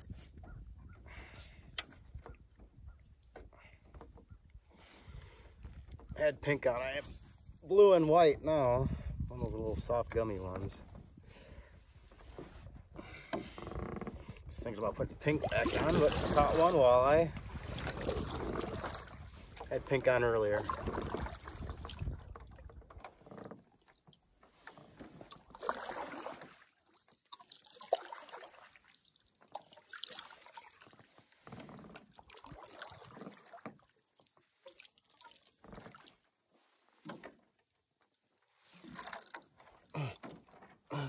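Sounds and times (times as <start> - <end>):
water splashes and trickles: 14.4 - 41.0.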